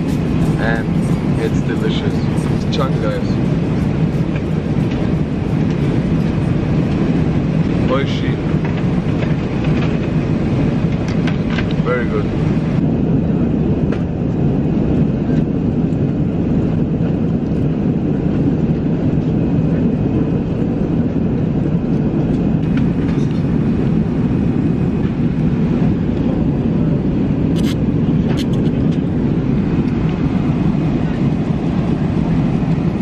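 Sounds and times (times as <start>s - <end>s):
airliner cabin noise: 0.0s - 33.0s.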